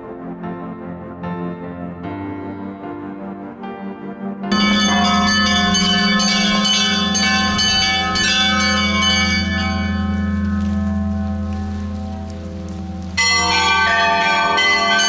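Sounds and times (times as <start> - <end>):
large bell humming low: 4.5 - 15.0
small church bells ringing: 4.5 - 15.0.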